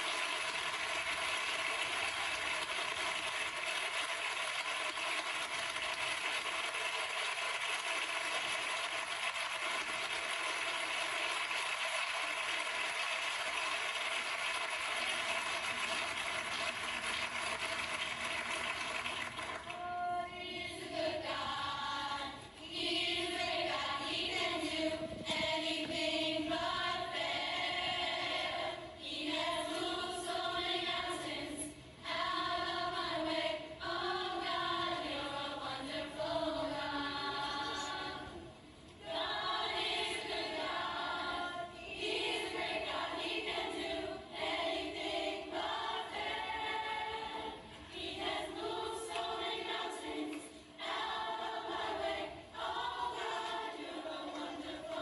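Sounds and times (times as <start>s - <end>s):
gospel choir of women singing: 19.7s - 55.0s.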